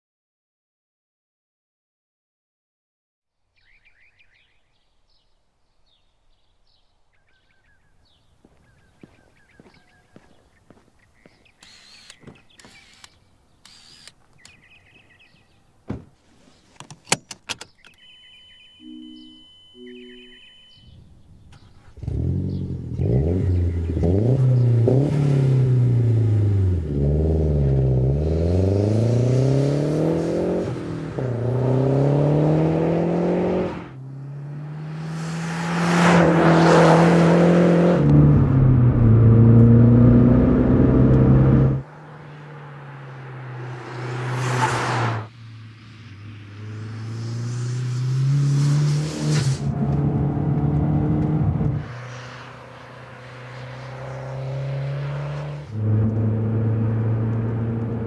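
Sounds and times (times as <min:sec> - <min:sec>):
turbocharged car engine accelerating: 0:21.9 - 0:58.0
car passing loudly: 0:22.0 - 0:58.0.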